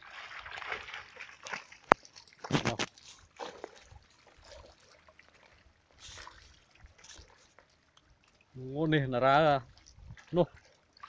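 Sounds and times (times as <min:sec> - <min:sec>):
water dripping: 0:00.0 - 0:08.6
water splashing and trickling: 0:00.0 - 0:11.0.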